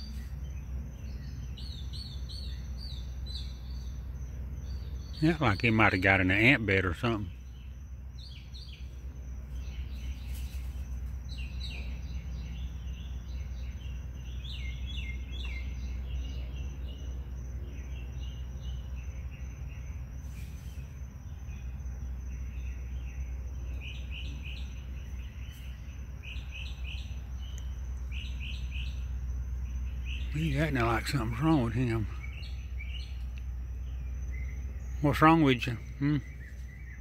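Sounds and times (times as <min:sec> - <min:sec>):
faint high whine: 0:00.0 - 0:37.0
insects chirping: 0:00.0 - 0:37.0
steady low hum: 0:00.0 - 0:37.0.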